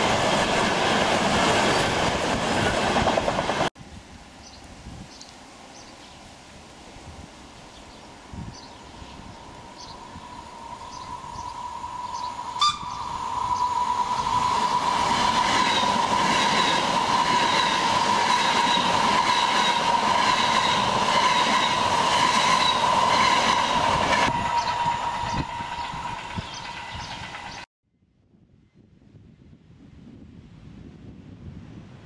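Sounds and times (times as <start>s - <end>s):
train passing at speed: 0.0s - 3.7s, 8.0s - 27.7s.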